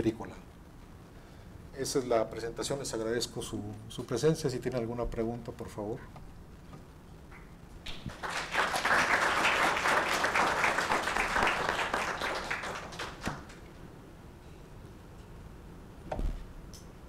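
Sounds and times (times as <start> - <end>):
audience applause: 7.9 - 13.6.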